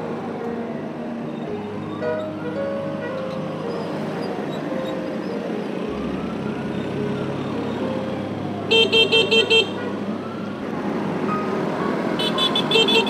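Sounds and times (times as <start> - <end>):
motorcycle engine and road noise: 0.0 - 13.0
siren wailing: 5.8 - 8.9
horn tooting: 8.7 - 10.0, 12.2 - 13.0.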